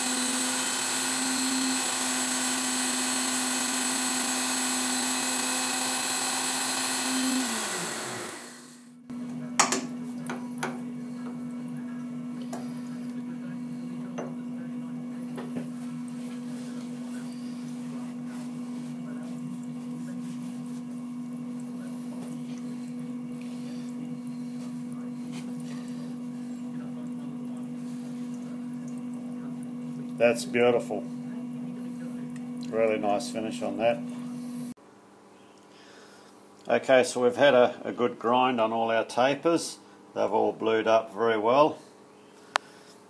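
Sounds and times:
grinder motor humming: 0.0s - 9.3s.

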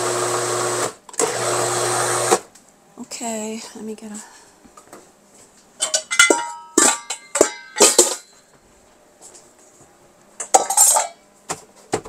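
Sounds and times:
kitchenware clinking and knocking: 5.8s - 8.4s, 10.4s - 11.2s.

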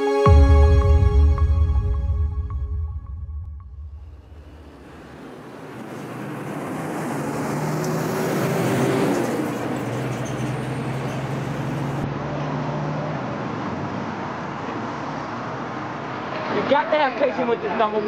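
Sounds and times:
vehicle engine hum: 3.4s - 16.6s
road traffic noise: 3.6s - 18.0s.

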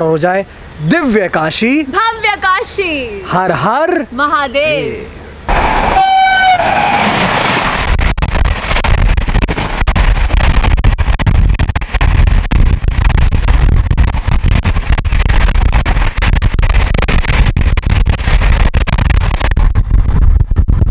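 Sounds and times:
trains rushing past: 5.2s - 7.9s
wind buffeting microphone: 5.5s - 20.9s.

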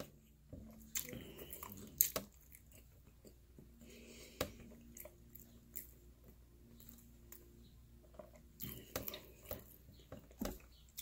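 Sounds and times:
chewing with mouth closed: 0.7s - 3.4s, 8.3s - 11.0s.

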